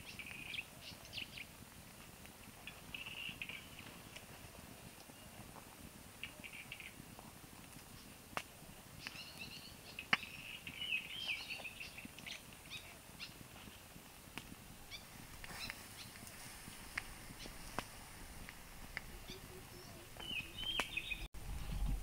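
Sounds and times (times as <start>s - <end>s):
small birds chirping: 0.0s - 1.6s, 2.6s - 4.2s, 6.2s - 7.0s, 8.9s - 13.9s, 14.8s - 21.3s.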